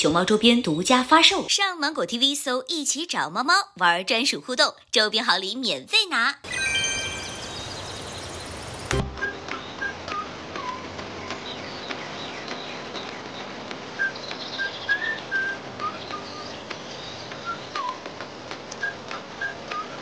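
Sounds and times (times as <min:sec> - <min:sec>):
birds chirping: 0:06.7 - 0:18.4.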